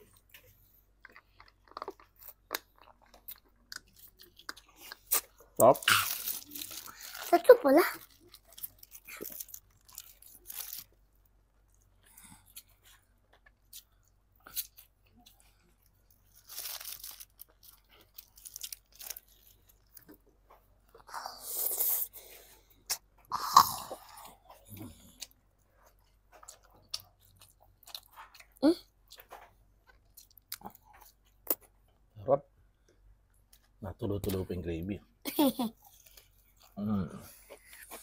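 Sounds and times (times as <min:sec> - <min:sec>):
wet chewing: 0:00.0 - 0:07.3
crunching bites of fried food: 0:08.0 - 0:11.0, 0:16.2 - 0:20.2.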